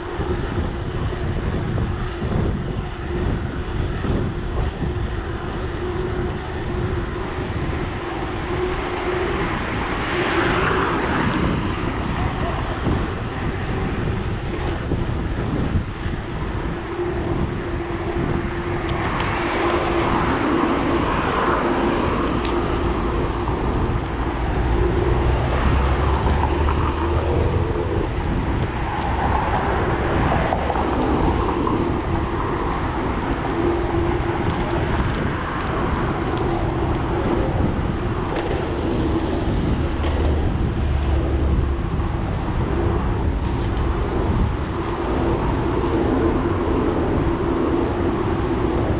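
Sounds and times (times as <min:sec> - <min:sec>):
bike tyres rolling on pavement: 0:00.0 - 0:48.9
wind rushing: 0:00.0 - 0:48.9
car traffic passing: 0:16.0 - 0:48.9.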